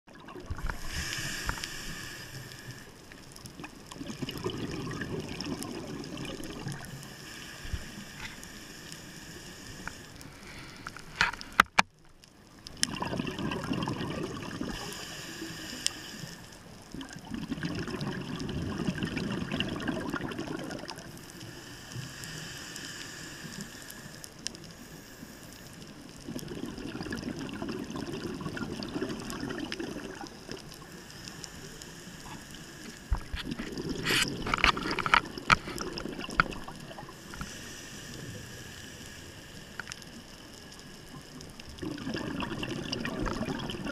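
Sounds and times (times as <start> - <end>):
underwater regulator bubbles gurgling: 0.1 - 8.4, 12.6 - 16.0, 16.8 - 21.2, 26.1 - 43.9.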